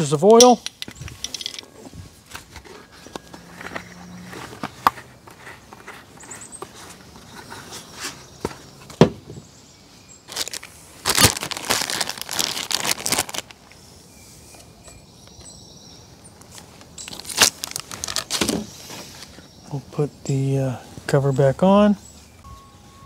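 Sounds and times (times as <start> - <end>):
plastic bag crinkling: 10.3 - 13.6, 17.0 - 18.6.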